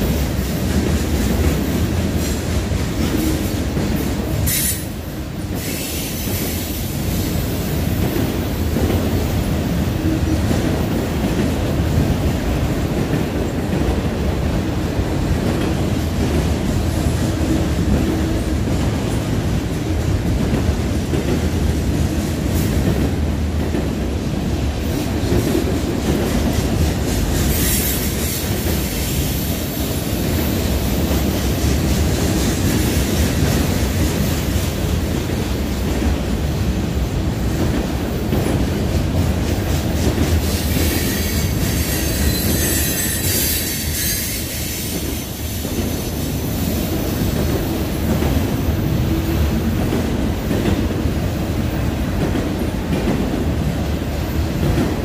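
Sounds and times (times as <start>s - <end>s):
freight train wheels rumbling on rail: 0.0s - 55.0s
high-pitched wheel squeal: 40.9s - 45.0s.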